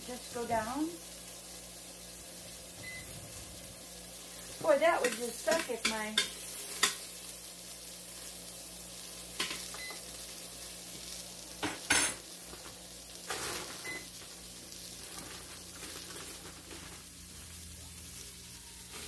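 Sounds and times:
onions sizzling in a pot: 0.0s - 19.0s
plastic bag rustling: 12.5s - 17.5s.

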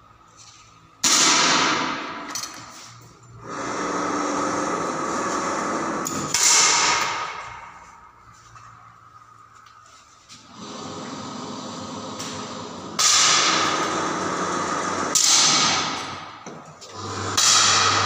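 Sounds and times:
air rifle shots: 1.0s - 2.2s.

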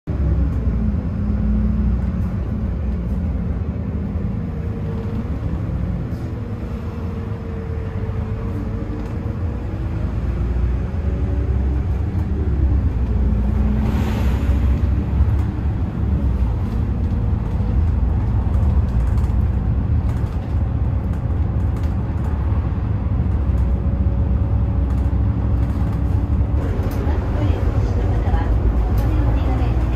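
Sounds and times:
bus engine and road rumble: 0.0s - 29.9s.

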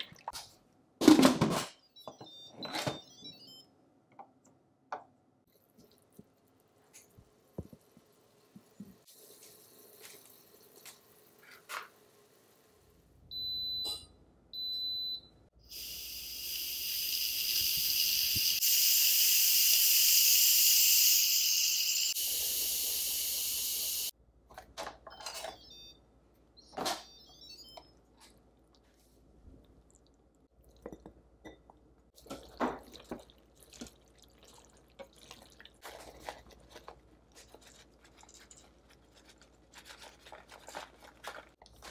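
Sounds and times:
pressure cooker beeping: 13.3s - 24.1s
steam hissing from valve: 15.7s - 24.1s.

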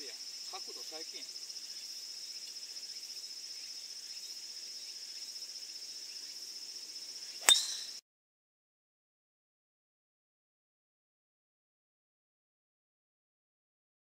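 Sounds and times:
crickets buzzing: 0.0s - 8.0s
sharp metallic click: 7.4s - 8.0s.

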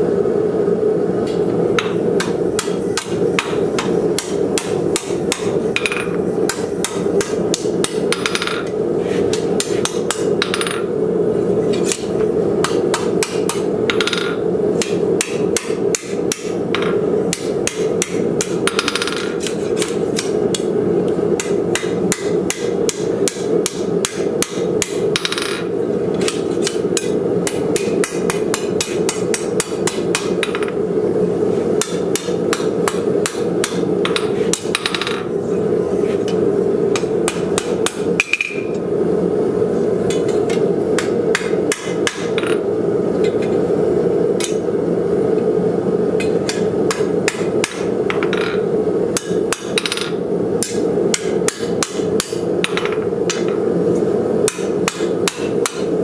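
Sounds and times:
steady low hum: 0.0s - 56.0s
hammer striking steel on anvil: 1.3s - 10.9s, 11.9s - 20.7s, 21.4s - 30.8s, 31.8s - 35.3s, 36.9s - 38.7s, 40.1s - 42.6s, 46.2s - 48.6s, 49.2s - 53.6s, 54.4s - 55.9s.

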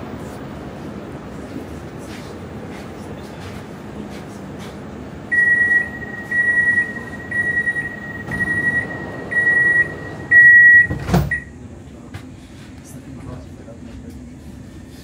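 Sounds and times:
low train hum: 0.0s - 15.0s
door warning beeps: 5.3s - 11.6s.

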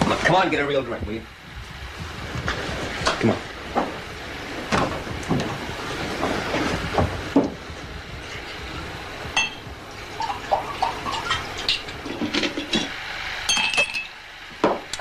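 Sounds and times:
drinks pouring: 2.4s - 15.0s
glass bottles knocking together: 9.4s - 9.6s
ringing glass clink: 9.4s - 9.6s, 13.5s - 14.2s.

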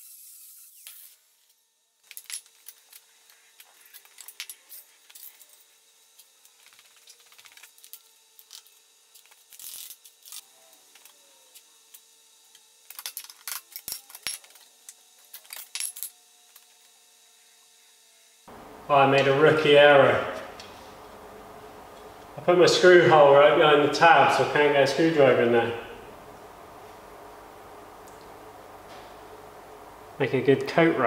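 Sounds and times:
small grinder whirring: 0.0s - 18.6s
faint steady hum: 0.8s - 31.0s.

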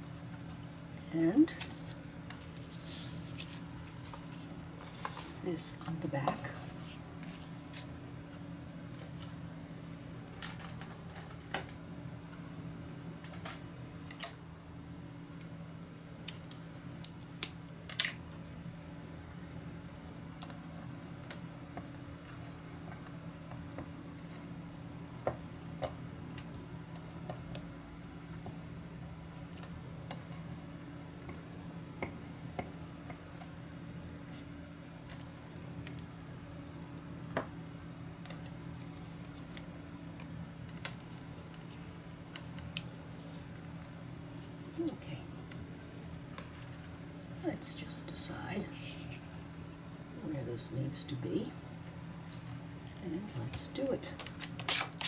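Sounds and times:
steady low hum: 0.0s - 55.0s
paper rustling: 1.5s - 5.4s.

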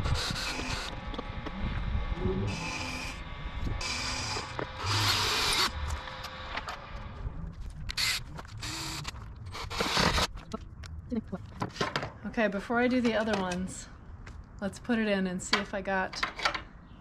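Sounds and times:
cordless drill drilling into wood: 3.8s - 5.8s, 9.6s - 10.3s.

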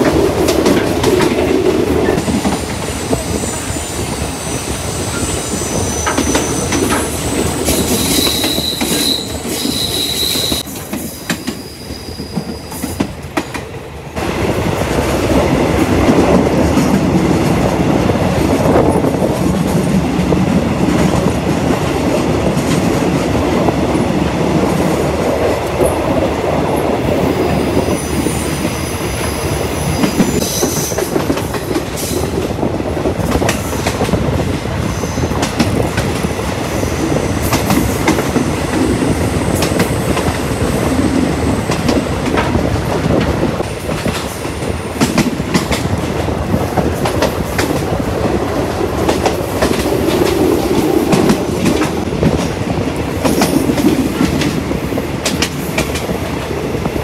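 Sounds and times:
train rumble on rails: 0.0s - 57.0s
high-pitched wheel squeals: 7.8s - 12.8s.

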